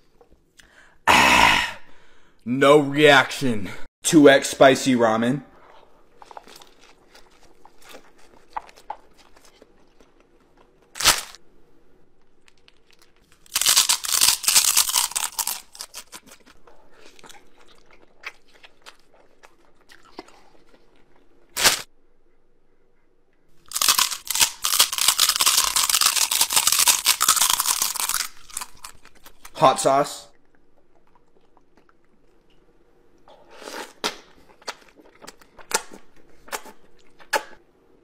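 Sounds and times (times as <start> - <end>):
slurping and chewing noodles: 6.0 - 10.8.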